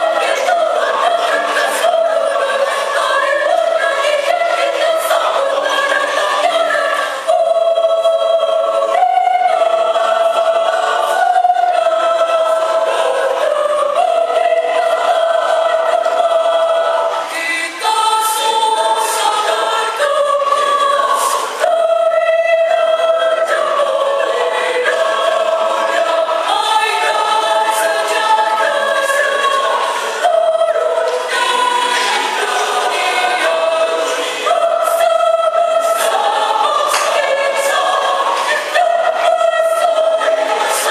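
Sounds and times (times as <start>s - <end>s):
mixed choir singing in harmony: 0.0s - 40.9s
singers breathing: 34.0s - 34.5s.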